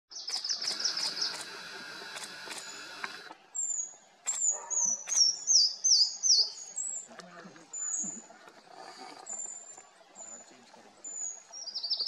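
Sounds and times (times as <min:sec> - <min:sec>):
sharp clicks: 0:00.2 - 0:03.4, 0:04.2 - 0:05.3.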